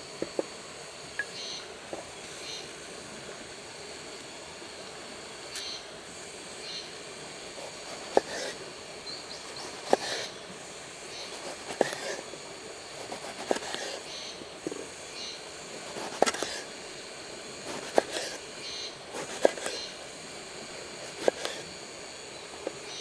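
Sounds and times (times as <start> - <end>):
outdoor background hiss: 0.0 - 23.0
knife slicing eggplant: 9.7 - 10.2, 13.0 - 14.0, 17.7 - 18.4, 21.0 - 21.6.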